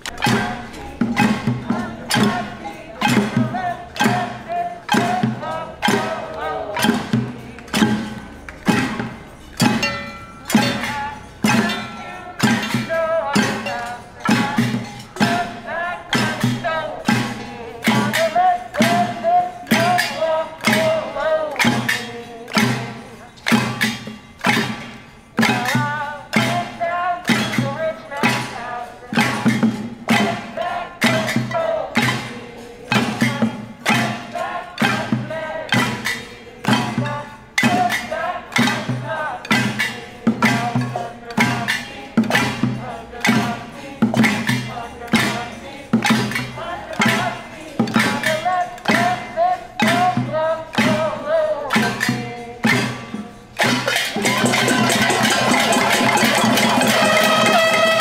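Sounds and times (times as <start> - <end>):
crowd singing: 0.0 - 58.0
spoons beating metal pots: 53.6 - 58.0
plastic bucket drum: 53.8 - 58.0.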